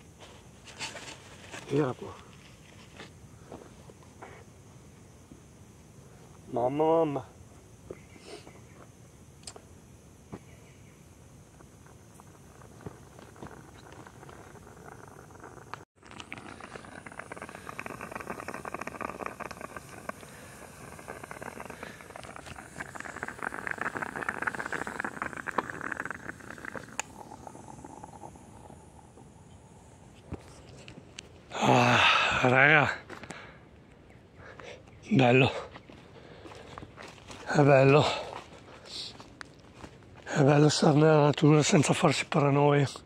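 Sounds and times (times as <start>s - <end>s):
coffee pot sputtering and gurgling: 11.6s - 33.0s.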